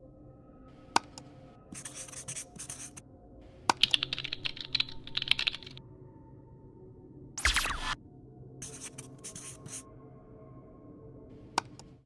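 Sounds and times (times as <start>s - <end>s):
marker writing: 1.7s - 3.0s, 8.6s - 9.8s
computer keyboard typing: 3.7s - 5.8s.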